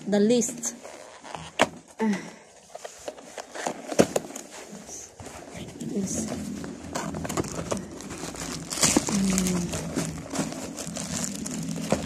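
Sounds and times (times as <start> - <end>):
plastic and cardboard crinkling: 2.6 - 12.0.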